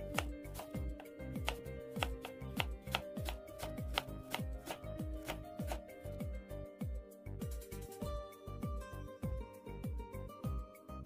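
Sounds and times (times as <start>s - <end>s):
knife slicing onion on board: 0.0s - 5.9s.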